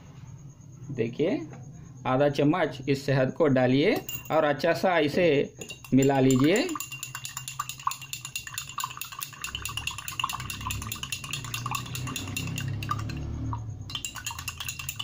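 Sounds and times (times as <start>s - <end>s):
spoon clinking in glass: 4.0s - 4.4s, 5.6s - 15.0s.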